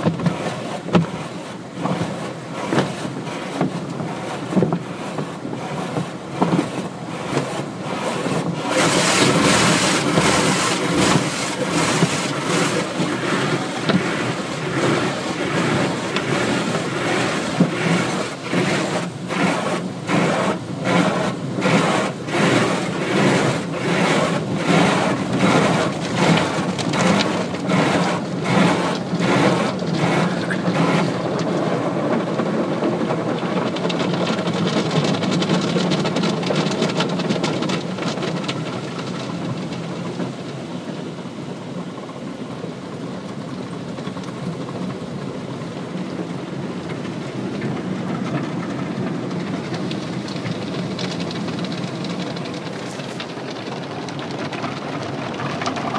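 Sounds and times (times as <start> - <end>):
water spraying: 0.0 - 32.4, 46.0 - 55.9
wash strips swishing over car: 0.0 - 42.3, 45.7 - 55.9
wash strips slapping car: 0.0 - 55.9.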